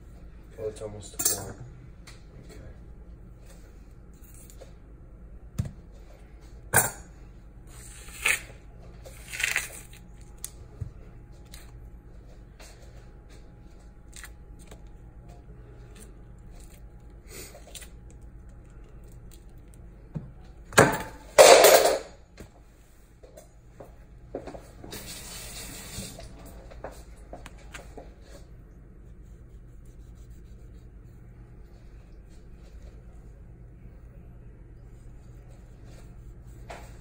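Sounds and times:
fruit membrane tearing: 7.9 - 10.6.

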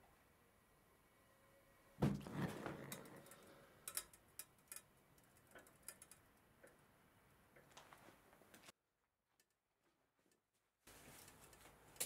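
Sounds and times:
sharp ticks of burner: 2.9 - 6.2.

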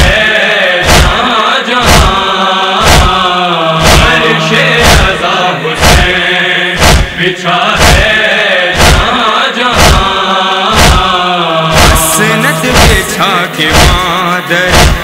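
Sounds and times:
voices chanting a lament: 0.0 - 15.0
hands striking chests: 0.8 - 1.2, 1.8 - 2.1, 2.8 - 3.2, 3.8 - 4.2, 4.8 - 5.2, 5.8 - 6.1, 6.8 - 7.2, 7.8 - 8.1, 8.8 - 9.1, 9.8 - 10.0, 10.8 - 11.1, 11.7 - 14.1, 14.7 - 15.0.

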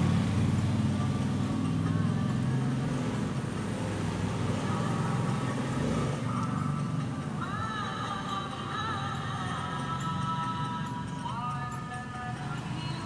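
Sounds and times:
engine idling: 0.0 - 13.0.

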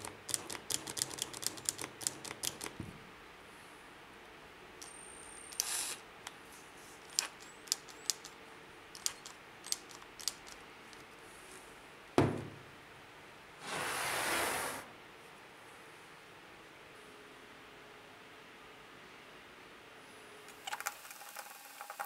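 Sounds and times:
hard thump: 12.2 - 12.6.

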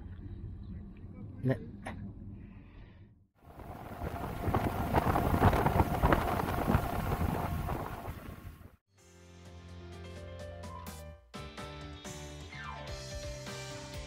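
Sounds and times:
ferry engine: 3.4 - 8.7
rush of boat wake: 3.4 - 8.8
wind buffeting microphone: 3.5 - 8.8.

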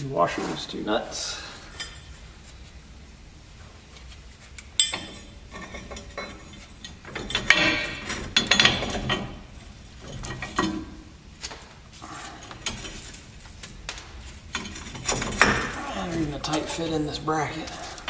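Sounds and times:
metal hardware clinking: 4.6 - 12.0, 12.6 - 18.0.

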